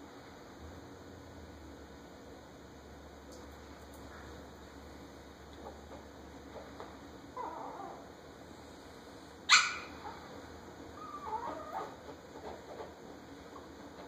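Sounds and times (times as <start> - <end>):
small dogs whining: 7.3 - 8.2, 9.5 - 12.2
small dog yapping: 7.4 - 8.1, 9.5 - 10.3, 11.0 - 12.1.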